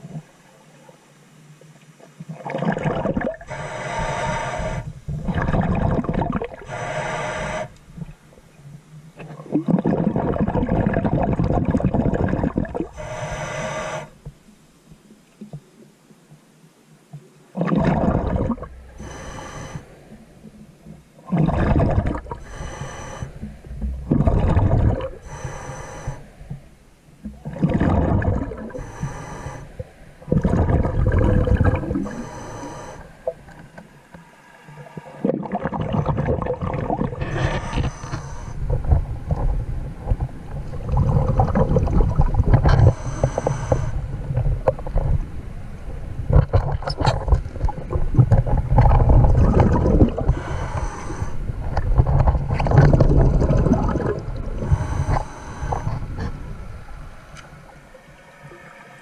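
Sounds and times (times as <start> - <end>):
exhaled bubbles rushing: 2.3 - 3.5, 5.1 - 6.7, 9.2 - 12.9, 17.6 - 18.8, 21.2 - 22.4, 23.8 - 25.2, 27.3 - 28.8, 30.2 - 32.2, 35.2 - 37.9, 38.6 - 43.0, 46.3 - 50.4, 51.6 - 56.7
scuba regulator breathing: 3.4 - 7.9, 12.8 - 14.2, 18.9 - 20.3, 21.7 - 26.7, 27.8 - 35.5, 37.0 - 39.0, 42.6 - 44.2, 49.6 - 57.8
low rumbling noise: 17.8 - 59.0.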